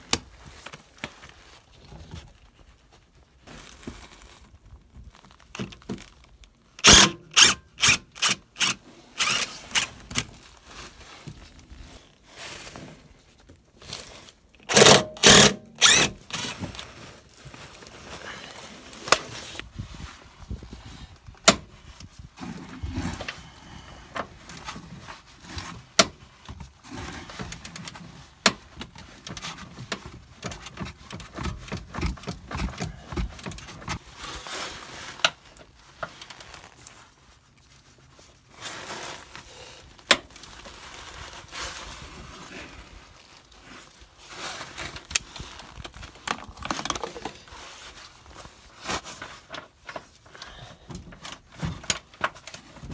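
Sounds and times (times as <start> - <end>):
shuffling and handling noise: 0.0 - 6.8, 8.9 - 14.7, 15.8 - 52.9.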